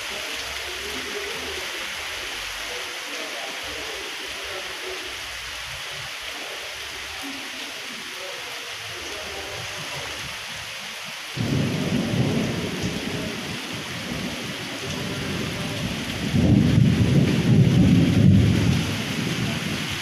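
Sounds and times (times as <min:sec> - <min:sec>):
heavy rain on a street: 0:00.0 - 0:20.0
thunder rumbling: 0:11.4 - 0:20.0.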